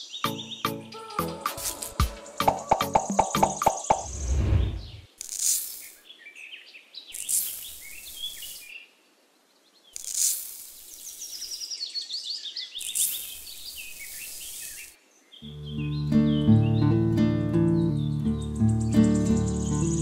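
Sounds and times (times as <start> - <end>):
birds chirping: 0.0 - 5.1, 10.9 - 20.0
sand pouring with a hiss: 1.6 - 2.0, 5.2 - 6.0, 7.1 - 8.7, 10.0 - 11.7, 12.8 - 15.0.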